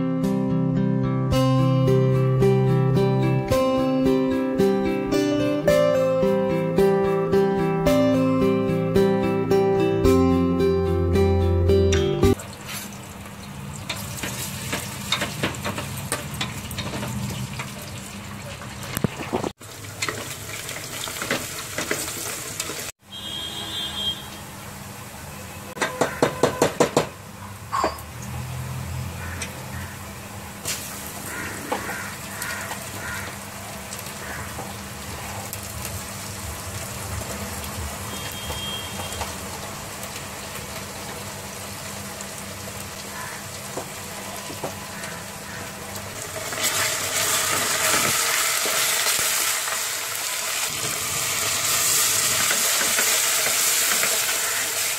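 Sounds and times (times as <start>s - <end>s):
onions sizzling in oil: 12.4s - 22.9s, 27.7s - 54.9s.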